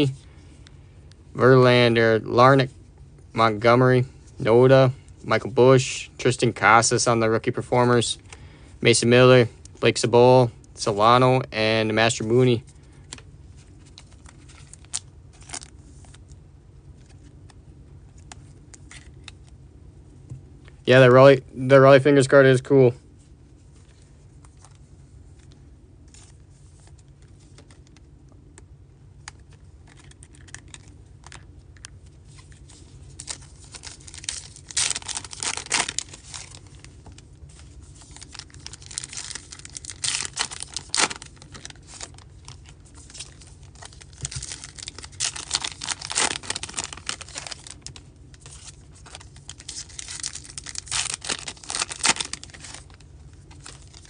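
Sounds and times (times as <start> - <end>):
wrappers torn and crinkled: 13.8 - 16.3, 29.8 - 54.0.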